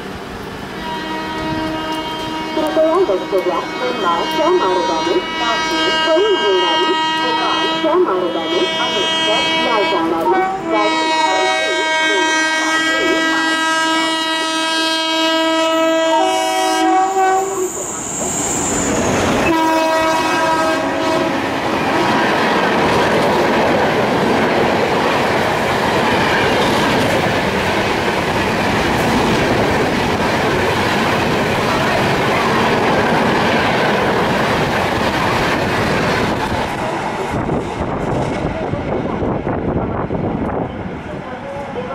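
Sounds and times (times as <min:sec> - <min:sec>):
train coaches rushing past: 0:00.0 - 0:15.2, 0:16.0 - 0:41.9
locomotive horn blasts: 0:00.8 - 0:17.7, 0:19.4 - 0:22.3.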